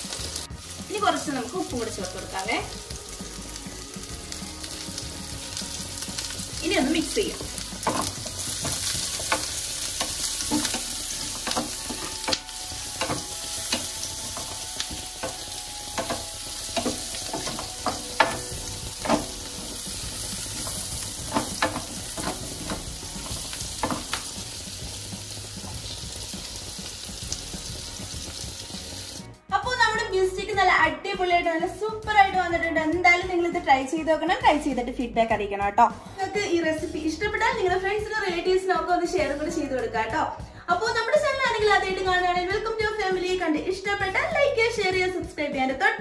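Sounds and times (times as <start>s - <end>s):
vegetables sizzling in pan: 0.0s - 29.3s.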